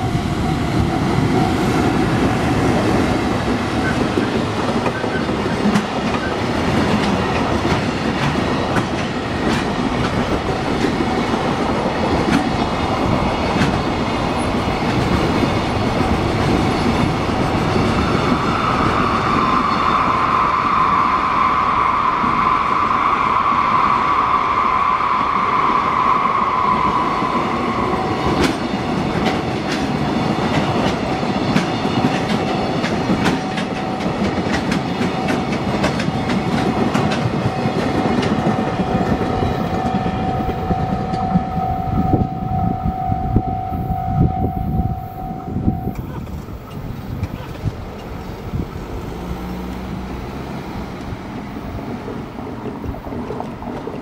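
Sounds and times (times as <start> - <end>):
train wheels clattering over joints: 2.0 - 19.8, 26.9 - 41.5
high wheel squeal: 16.6 - 28.6, 39.3 - 46.3
crossing warning bell ringing: 38.6 - 46.2.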